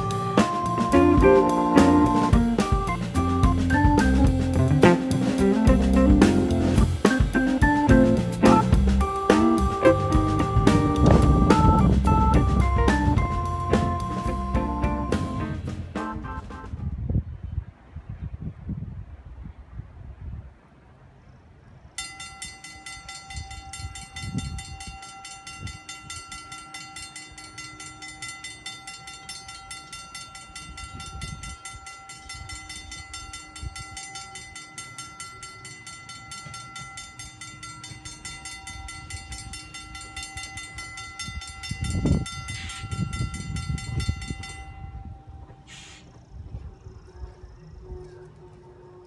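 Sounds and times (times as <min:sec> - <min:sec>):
trolley car high-pitched whine: 0:00.0 - 0:16.8
low rumble: 0:07.8 - 0:17.4.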